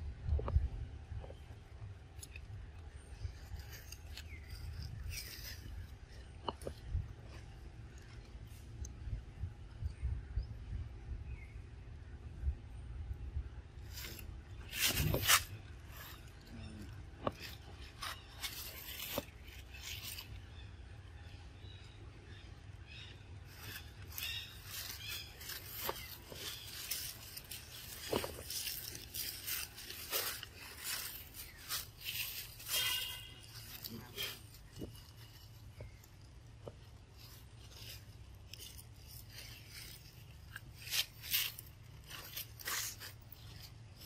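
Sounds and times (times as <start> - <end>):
steady low rumble: 0.0 - 32.7
rustling on dry leaf litter: 3.2 - 8.6, 13.8 - 20.6, 22.9 - 44.0.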